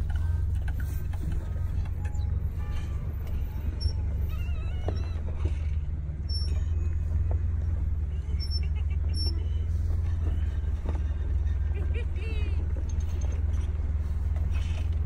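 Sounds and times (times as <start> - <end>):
vehicle engine and tyre rumble: 0.0 - 15.0.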